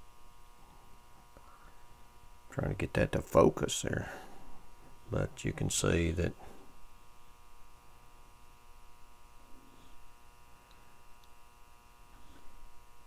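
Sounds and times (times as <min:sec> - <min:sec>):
faint electrical buzz: 0:00.0 - 0:13.0
faint small ticks: 0:10.6 - 0:11.4.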